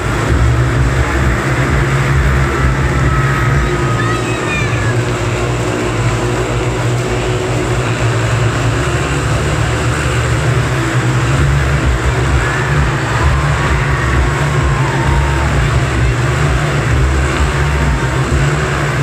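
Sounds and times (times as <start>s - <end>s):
motorcycle engines droning: 0.0s - 19.0s.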